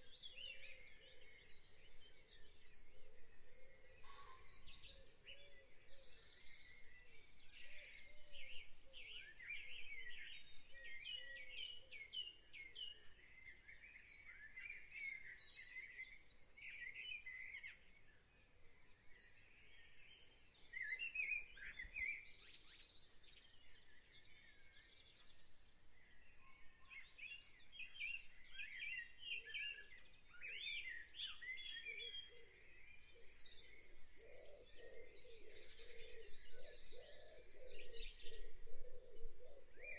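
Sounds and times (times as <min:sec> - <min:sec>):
small birds singing: 0:00.0 - 0:39.9.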